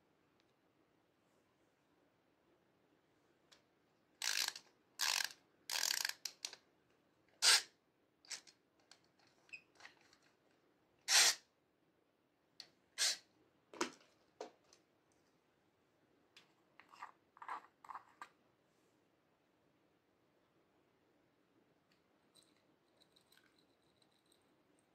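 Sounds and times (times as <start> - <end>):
plastic toy scraping and clicking: 4.2 - 6.6, 8.3 - 10.3, 16.8 - 18.3.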